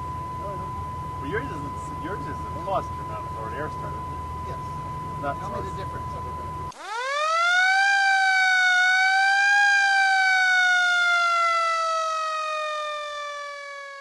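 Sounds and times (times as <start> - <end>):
siren wailing: 0.0 - 14.0.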